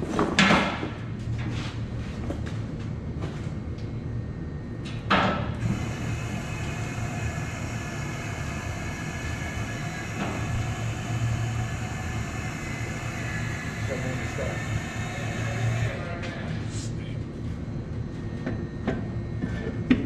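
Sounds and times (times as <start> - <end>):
low steady hum: 0.9 - 20.0
machine noise with hiss: 4.8 - 17.2.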